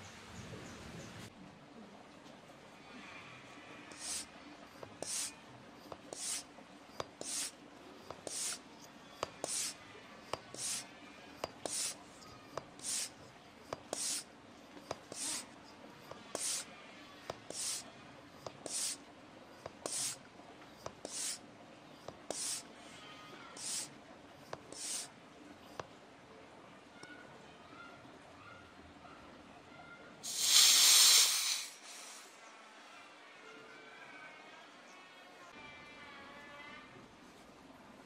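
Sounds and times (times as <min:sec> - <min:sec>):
hand pump hissing and clicking: 0:03.9 - 0:17.8, 0:18.4 - 0:20.2, 0:20.8 - 0:21.4, 0:22.0 - 0:22.7, 0:23.5 - 0:25.1, 0:30.3 - 0:32.0.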